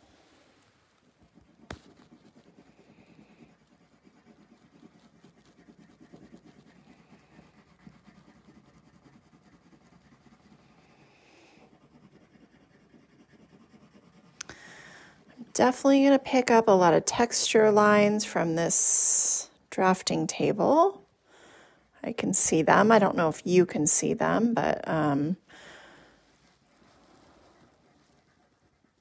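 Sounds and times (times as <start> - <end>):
pencil scratching on paper: 1.0 - 21.1, 26.0 - 29.0.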